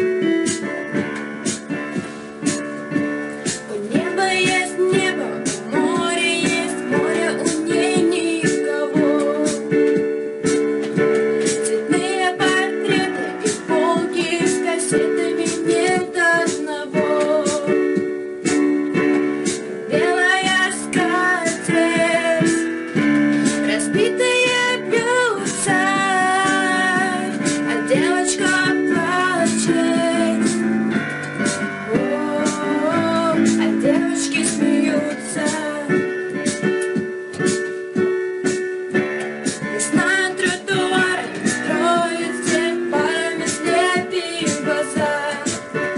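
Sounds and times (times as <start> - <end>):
sustained keyboard chords: 0.0 - 45.9
woman singing with vibrato: 3.7 - 9.9, 11.6 - 18.0, 19.9 - 30.9, 31.9 - 36.1, 39.6 - 45.9.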